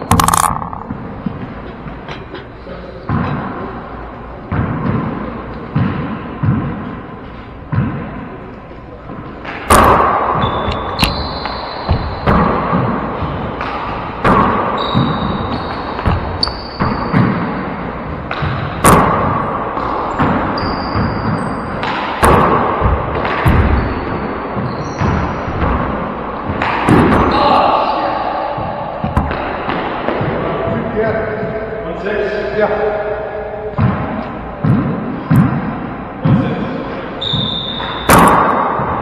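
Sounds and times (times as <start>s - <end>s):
sneakers squeaking on hardwood: 10.4s - 13.6s, 14.7s - 17.4s, 20.0s - 21.8s, 22.8s - 25.8s, 37.2s - 38.2s.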